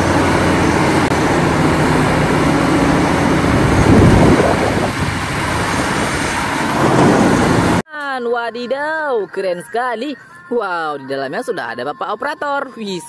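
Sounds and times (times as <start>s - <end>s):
excavator engine drone: 0.0s - 7.8s
loud rushing noise: 0.0s - 7.8s.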